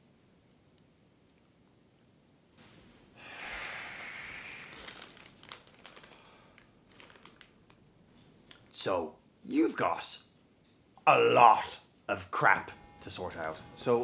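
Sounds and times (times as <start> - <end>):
plastic packet crinkling: 4.4 - 7.9.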